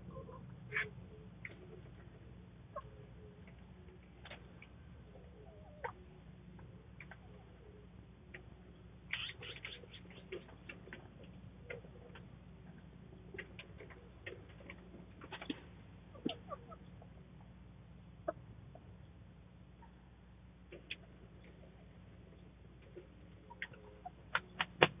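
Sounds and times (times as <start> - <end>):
chickens clucking softly: 0.0 - 25.0
low hum: 0.0 - 25.0.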